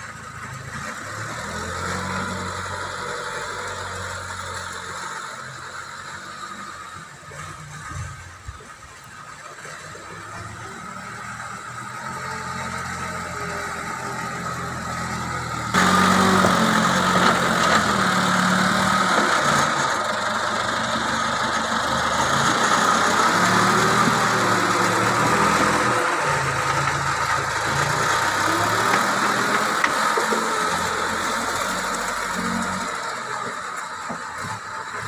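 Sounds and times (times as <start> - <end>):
diesel engine running: 0.0 - 35.0.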